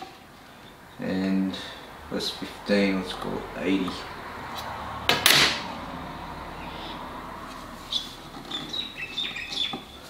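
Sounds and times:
short high bird chirps: 7.9 - 10.0.

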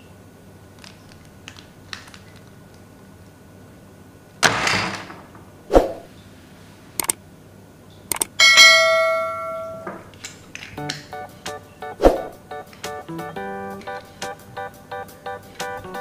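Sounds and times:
mouse clicks: 8.1 - 8.3
notification bell ding: 8.4 - 9.9.

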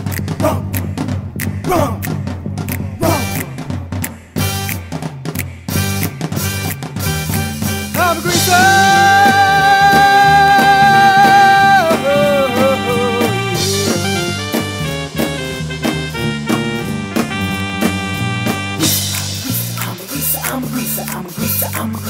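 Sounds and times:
upbeat band song with drums: 0.0 - 22.0
voice holding a high note: 8.0 - 19.1.

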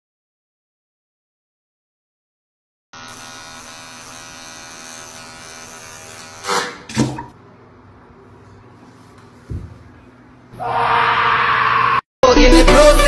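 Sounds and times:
electric shaver buzzing: 3.0 - 6.9.

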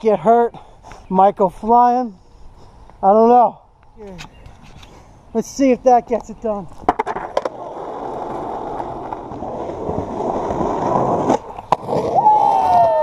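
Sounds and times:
skateboard wheels rolling on pavement: 4.4 - 13.0
skateboard tail crack: 6.7 - 13.0
skateboard landing slap: 6.8 - 7.6.

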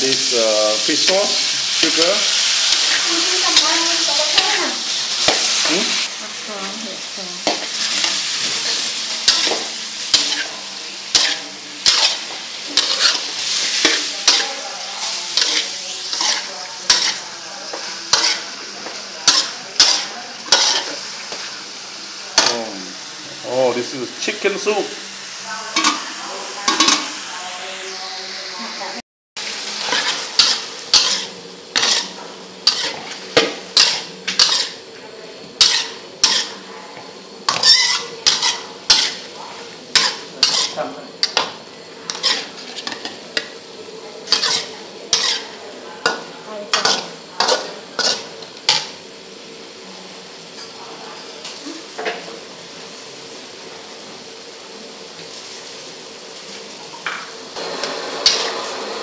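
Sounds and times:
food sizzling in oil: 0.0 - 59.0
metal utensil scraping a pan: 7.4 - 21.6, 29.8 - 34.8, 35.6 - 36.7, 37.5 - 43.6, 44.2 - 48.9, 58.2 - 58.6.

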